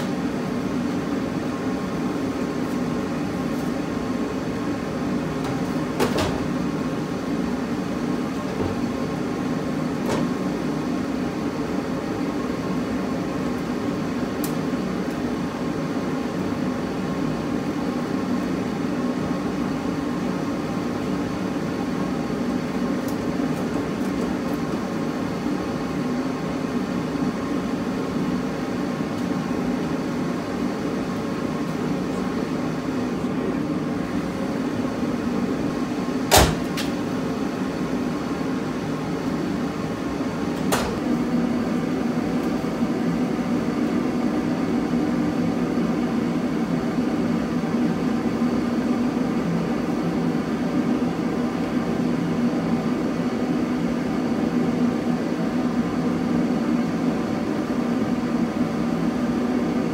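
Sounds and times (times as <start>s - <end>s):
low machine hum: 0.0s - 59.9s.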